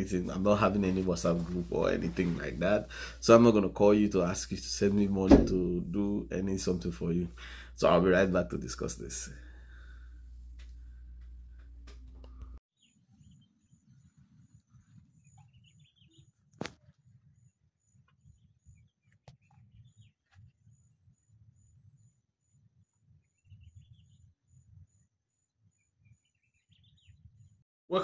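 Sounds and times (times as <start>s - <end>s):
low rumble on microphone: 0.0s - 7.7s
bird chirps: 12.8s - 16.5s, 17.1s - 27.6s.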